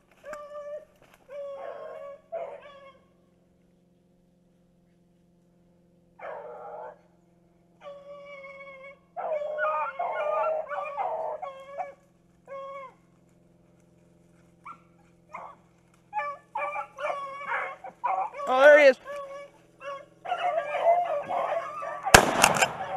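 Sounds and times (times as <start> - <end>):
hounds baying and howling: 0.1 - 3.2, 6.2 - 7.1, 7.8 - 13.3, 14.6 - 22.9.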